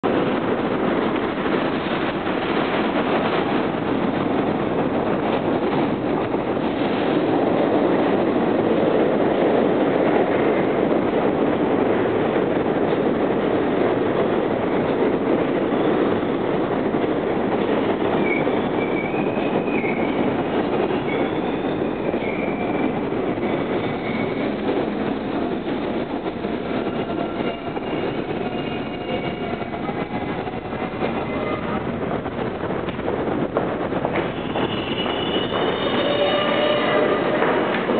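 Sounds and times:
train wheels rumbling on rail: 0:00.0 - 0:37.9
high wheel squeals: 0:34.3 - 0:37.4.

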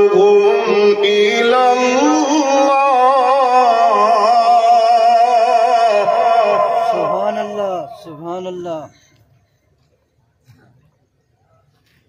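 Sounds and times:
man chanting melodically: 0:00.0 - 0:08.9.

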